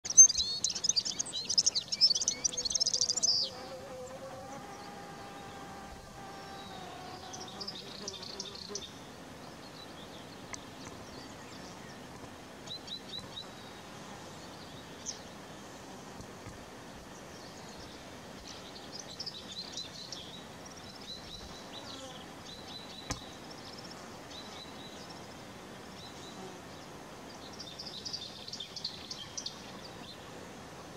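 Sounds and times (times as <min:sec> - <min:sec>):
bird twittering calls: 0:00.1 - 0:03.6
steady background hiss: 0:00.1 - 0:30.9.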